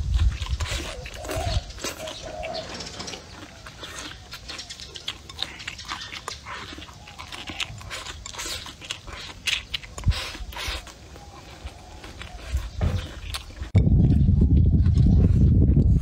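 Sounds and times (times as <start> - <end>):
person chewing food: 0.0 - 16.0.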